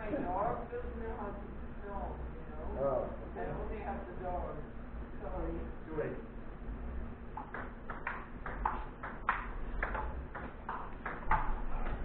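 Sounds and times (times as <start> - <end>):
ping-pong ball bouncing on table: 7.4 - 12.0
ping-pong ball clicking off paddles: 7.4 - 12.0.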